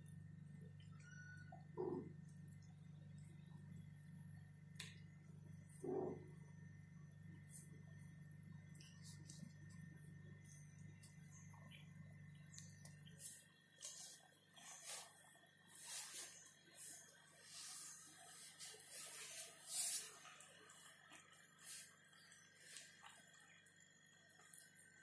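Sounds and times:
cats rustling and scuffling: 12.8 - 21.9.

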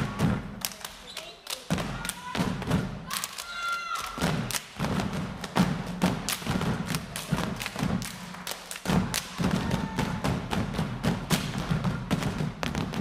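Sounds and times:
hand claps: 0.0 - 13.0
stomps on wooden stage floor: 4.2 - 13.0.

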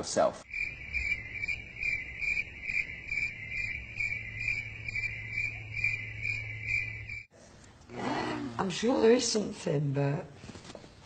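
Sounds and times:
crickets chirping: 0.4 - 7.3.

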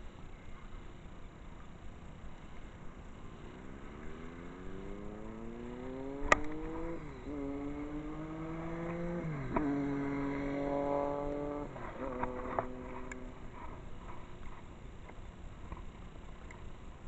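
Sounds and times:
vehicle engine accelerating: 3.0 - 14.4
sharp click: 6.2 - 6.6.

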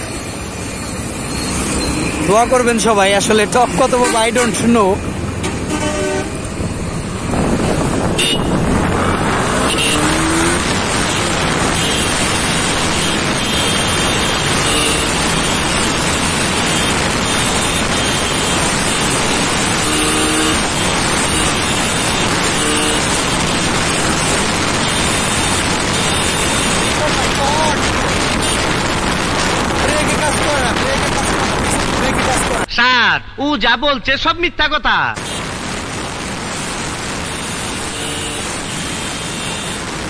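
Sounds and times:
wind and road noise: 0.0 - 32.7, 35.2 - 40.0
motorcycle engine running hard: 7.4 - 29.8
horn: 9.5 - 15.7, 19.7 - 23.1.

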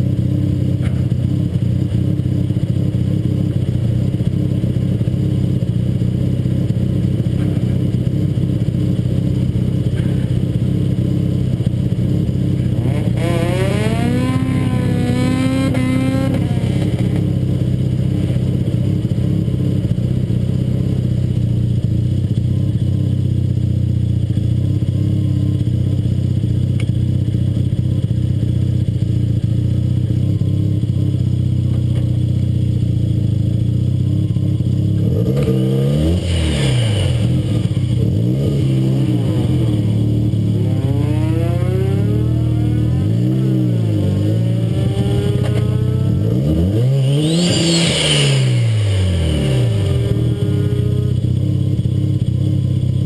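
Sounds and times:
car engine rumbling: 0.0 - 53.0
rising whine: 36.2 - 52.0.

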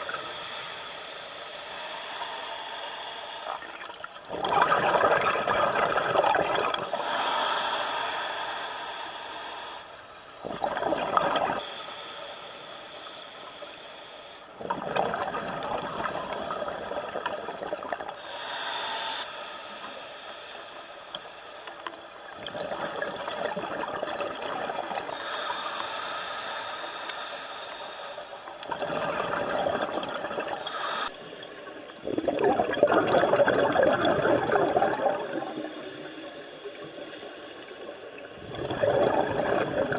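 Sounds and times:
regulator hissing inhale: 0.0 - 3.9, 6.8 - 10.1, 11.6 - 14.5, 18.2 - 22.0, 24.8 - 28.6, 30.6 - 31.9, 35.1 - 38.0
exhaled bubbles rushing: 3.8 - 6.8, 10.4 - 11.6, 14.6 - 18.1, 28.7 - 30.6, 32.0 - 35.5, 38.3 - 39.9.

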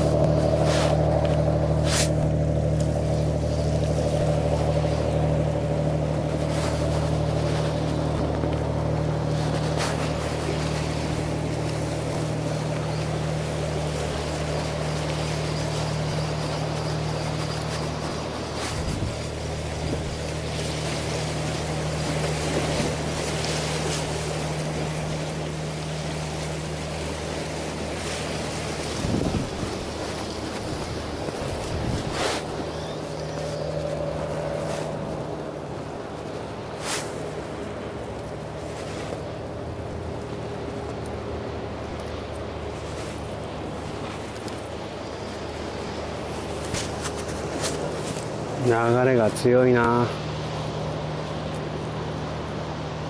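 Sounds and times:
boat engine droning: 0.0 - 53.0
water wash: 0.0 - 53.0
wind: 0.0 - 53.0.

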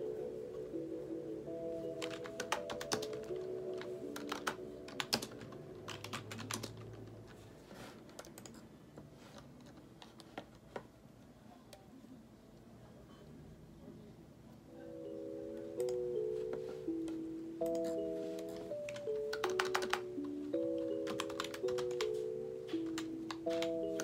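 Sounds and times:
typing on computer keyboard: 2.0 - 7.4, 8.0 - 8.6, 17.6 - 22.2, 22.8 - 24.0.

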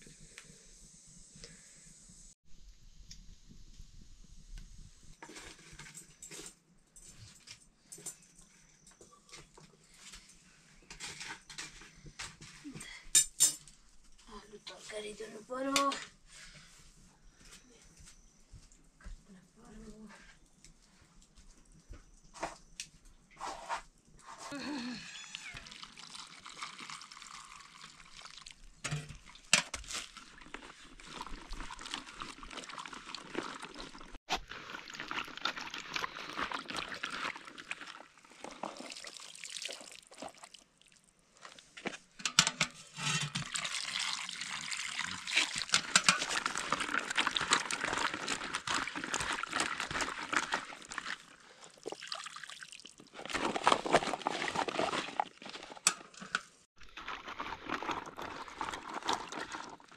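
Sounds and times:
water pouring and trickling: 25.2 - 41.7, 43.2 - 55.8, 56.8 - 59.9.

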